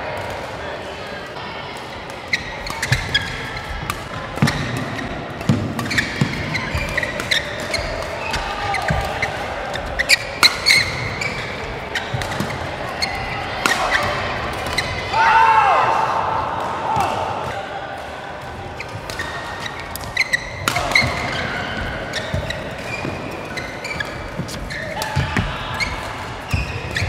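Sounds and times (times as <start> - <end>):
rackets hitting shuttlecock: 1.8 - 15.1, 16.5 - 27.0
shoes squeaking on court: 2.2 - 15.0, 18.8 - 27.0.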